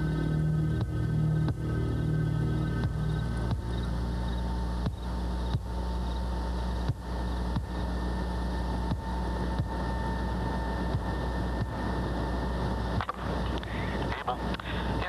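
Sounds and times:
jet engines droning: 0:00.0 - 0:15.0
thin jet whine: 0:00.0 - 0:15.0.

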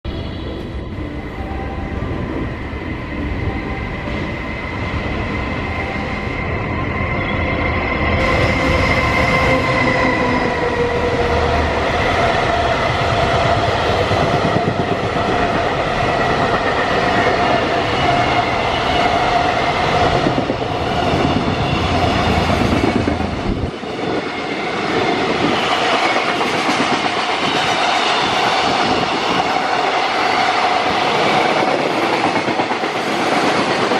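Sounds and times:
electric locomotive passing: 0:00.1 - 0:33.9
train wheels clattering on rails: 0:08.2 - 0:33.9.

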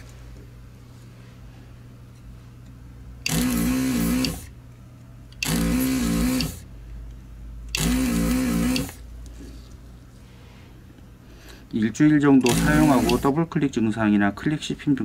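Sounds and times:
desoldering pump buzzing: 0:03.1 - 0:04.6, 0:05.3 - 0:06.9, 0:07.6 - 0:09.4, 0:11.4 - 0:13.6.

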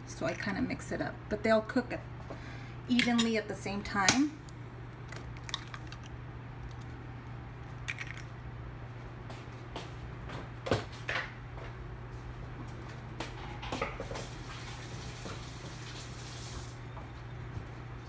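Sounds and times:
steady low hum: 0:00.0 - 0:14.1.

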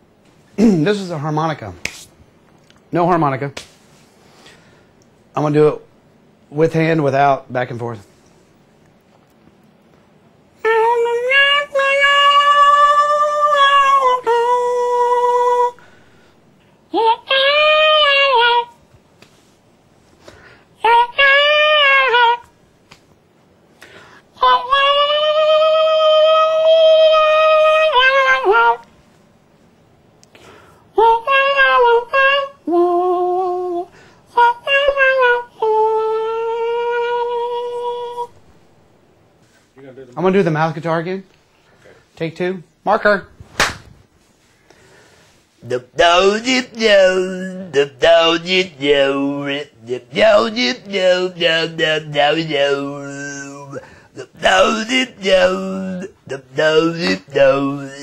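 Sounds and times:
man imitating harmonica: 0:45.7 - 0:49.2, 0:49.8 - 0:58.0.

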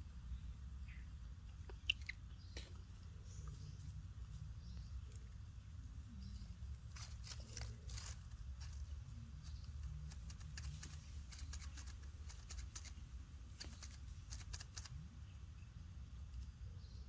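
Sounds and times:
low steady rumble: 0:00.0 - 0:17.0
faint crackles and rustles: 0:02.5 - 0:15.0.

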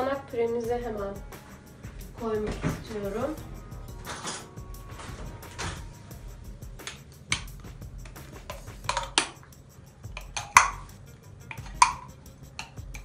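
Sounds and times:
metal spoon clinking on glass jar: 0:10.1 - 0:13.0.

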